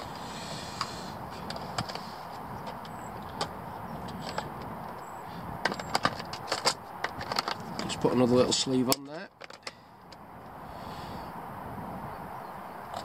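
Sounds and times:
background hiss: 0:00.0 - 0:02.6, 0:09.8 - 0:11.4
plastic tackle box clicks and rattles: 0:00.8 - 0:03.5, 0:05.6 - 0:09.8.

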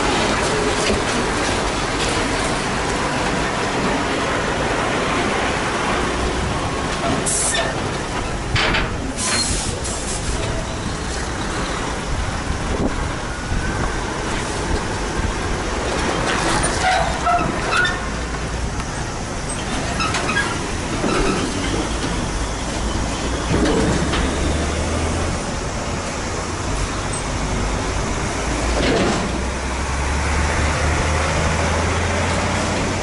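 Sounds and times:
trailer chassis clattering: 0:00.0 - 0:33.0
trucks passing with engine rumble: 0:00.0 - 0:33.0
short air hisses: 0:09.2 - 0:10.4.

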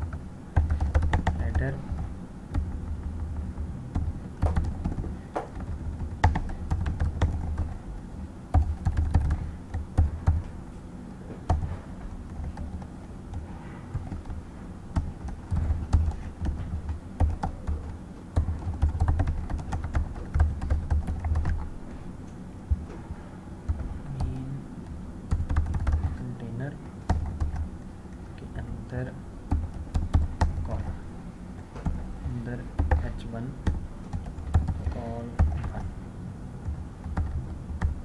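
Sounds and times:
keyboard keystrokes clicking: 0:00.0 - 0:07.8.

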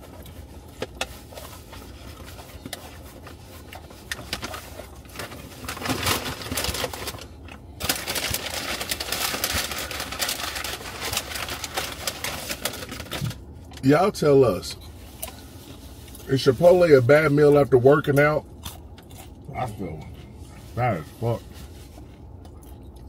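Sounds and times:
paper bag rustling: 0:00.0 - 0:13.4.

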